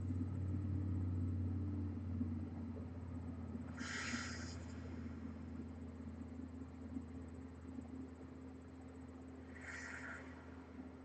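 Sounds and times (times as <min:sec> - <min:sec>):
low room hum: 0:00.0 - 0:11.0
breathy exhale: 0:03.8 - 0:05.0, 0:09.5 - 0:10.5.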